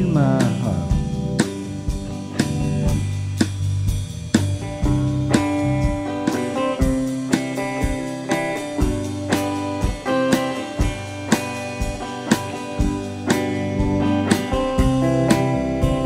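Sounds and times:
drum kit beat: 0.0 - 16.0
electric guitars: 0.0 - 16.0.

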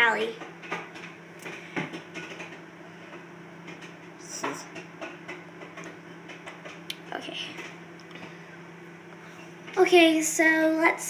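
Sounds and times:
popcorn popping: 0.0 - 8.4
microwave oven humming: 0.0 - 11.0.

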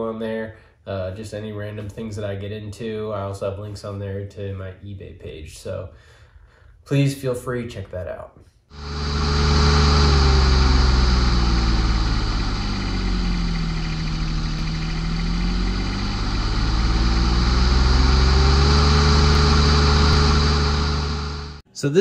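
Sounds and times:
engine running steadily: 8.8 - 21.6.

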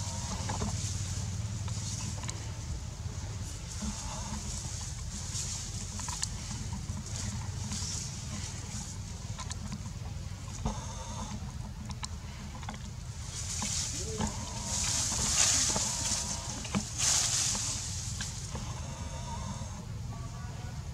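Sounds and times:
bamboo leaves rustling: 0.0 - 9.4, 13.1 - 19.7.

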